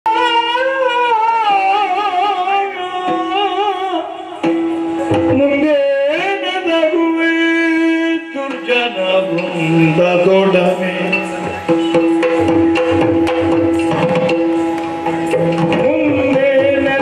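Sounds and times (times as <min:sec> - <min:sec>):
person singing ornamented melody: 0:05.1 - 0:12.0, 0:15.7 - 0:17.0
sharp drum strokes: 0:08.5 - 0:17.0.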